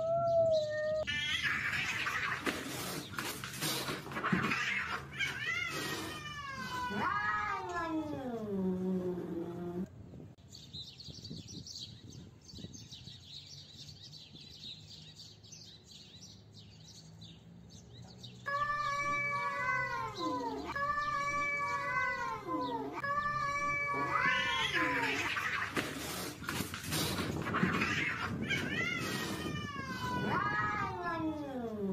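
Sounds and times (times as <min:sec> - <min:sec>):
cats yowling: 0:00.0 - 0:03.0, 0:03.7 - 0:09.8, 0:18.5 - 0:26.3, 0:27.3 - 0:31.9.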